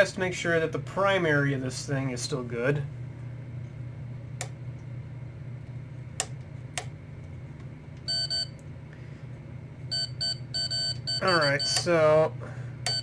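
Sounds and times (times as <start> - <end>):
steady low hum: 0.0 - 13.0
power switch clicks: 6.2 - 7.0
multimeter continuity beep: 8.1 - 8.6, 9.9 - 12.0.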